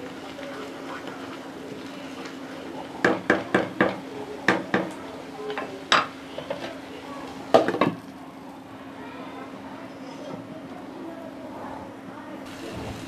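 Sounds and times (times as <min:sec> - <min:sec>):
wooden spatula knocking on pan: 0:03.0 - 0:06.7, 0:07.5 - 0:08.0.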